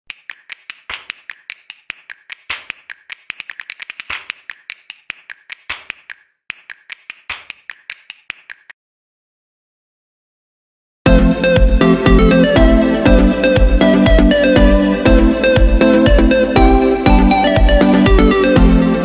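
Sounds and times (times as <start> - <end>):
keyboard typing clicks: 0.1 - 8.7.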